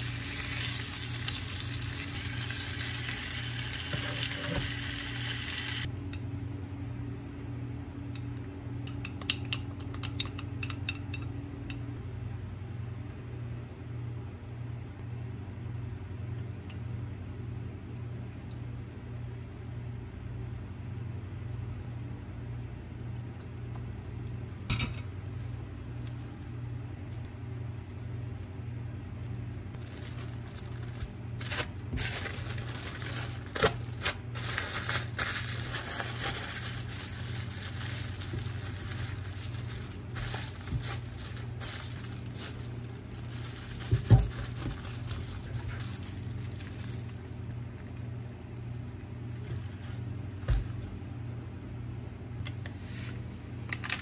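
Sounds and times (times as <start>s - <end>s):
plastic wrap crinkling: 0.0s - 4.8s, 29.8s - 51.0s
steady low hum: 0.0s - 54.0s.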